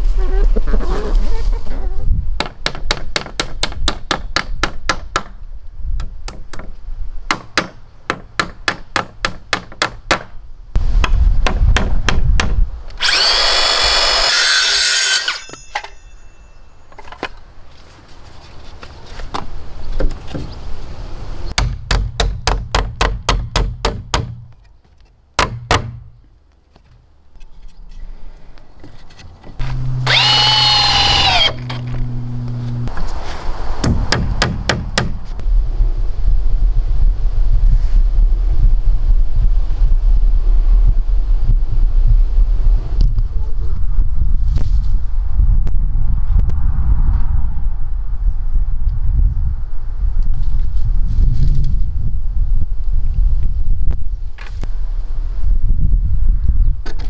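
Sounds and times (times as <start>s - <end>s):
power saw cutting wood: 13.0s - 15.6s, 29.6s - 32.8s.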